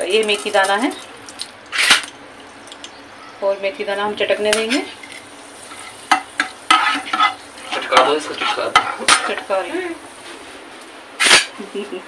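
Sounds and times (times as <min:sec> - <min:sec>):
seeds sizzling in hot oil: 0:04.2 - 0:10.6
ladle scraping a pan: 0:04.6 - 0:09.6.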